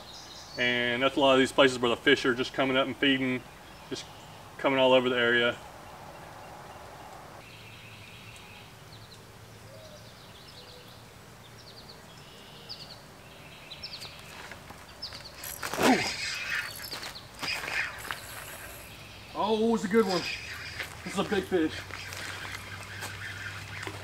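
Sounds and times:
small birds chirping: 0.0s - 24.0s
rustling of movement: 13.8s - 24.0s.

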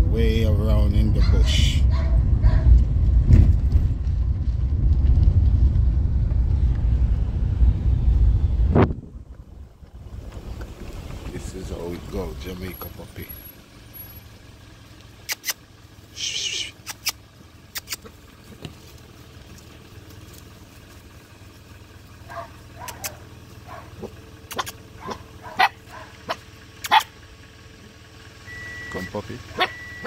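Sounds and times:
low steady hum: 0.0s - 30.0s
puppies whimpering and yipping: 29.6s - 30.0s.

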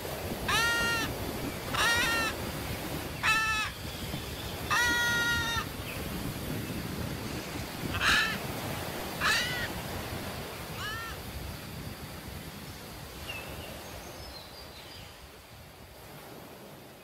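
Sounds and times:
parrot squawks: 0.5s - 1.1s, 1.7s - 2.4s, 3.2s - 3.8s, 4.7s - 5.7s, 7.9s - 8.4s, 9.2s - 9.7s, 10.8s - 11.2s.

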